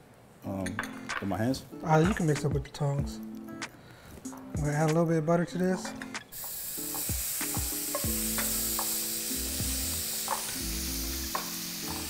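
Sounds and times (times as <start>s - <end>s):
seafood sizzling in a skillet: 6.3s - 12.0s.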